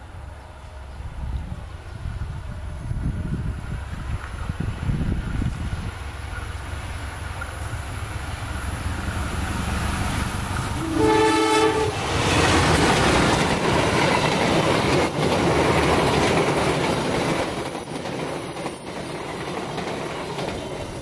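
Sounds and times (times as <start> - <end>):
train rushing past: 0.0 - 21.0
wheels knocking over rail joints: 10.4 - 21.0
train horn blast: 10.8 - 12.4.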